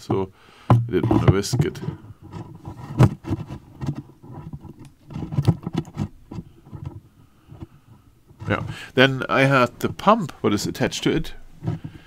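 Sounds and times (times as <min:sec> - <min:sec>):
phone knocking in plastic tank: 0:00.7 - 0:01.8.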